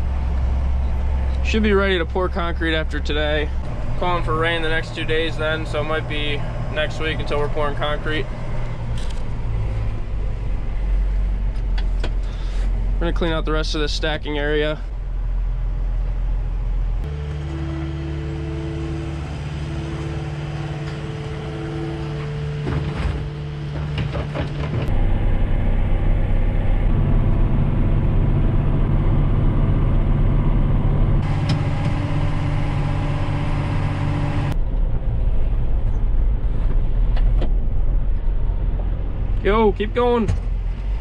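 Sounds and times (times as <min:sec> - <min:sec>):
tractor engine running: 0:00.0 - 0:41.0
two-note tone: 0:17.1 - 0:24.0.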